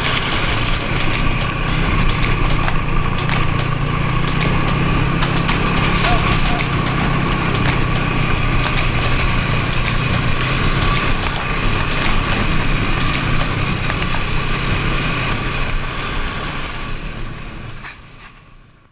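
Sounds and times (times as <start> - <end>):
sharp ticks and knocks: 0.0 - 14.7
snowmobile engine running: 0.0 - 18.8.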